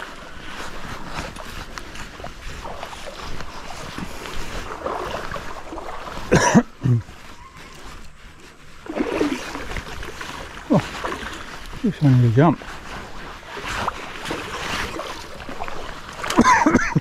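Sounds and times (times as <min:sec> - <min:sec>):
stream water running: 0:00.0 - 0:17.0
fish splashing at the surface: 0:08.8 - 0:11.7, 0:13.5 - 0:16.4.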